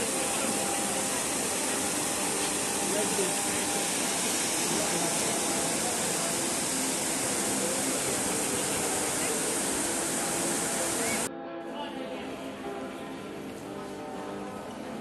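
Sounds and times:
fountain water cascading: 0.0s - 11.3s.

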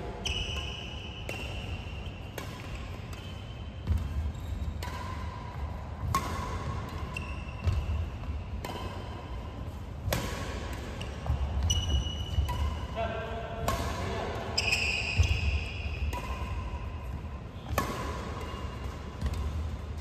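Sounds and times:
sneaker squeaks: 0.0s - 13.0s, 13.6s - 20.0s.

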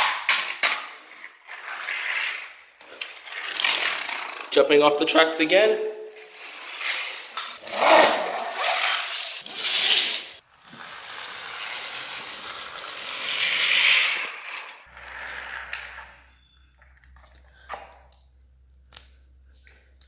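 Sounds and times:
toy trains rustling and scraping: 6.2s - 7.6s, 8.5s - 17.4s.

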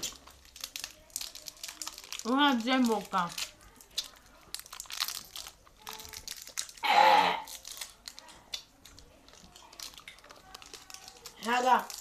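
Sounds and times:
candy wrappers crinkling: 0.0s - 12.0s
loud vocal outburst: 6.8s - 7.5s.

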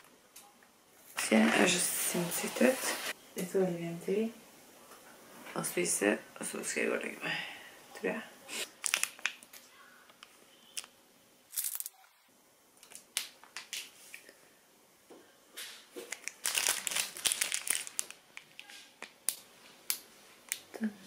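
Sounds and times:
plastic wrapper crinkling: 8.6s - 12.1s, 12.8s - 14.2s, 16.0s - 20.6s.

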